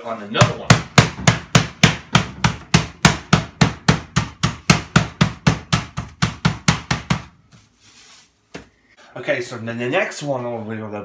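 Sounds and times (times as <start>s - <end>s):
rolling pin whacking meat: 0.4s - 7.3s.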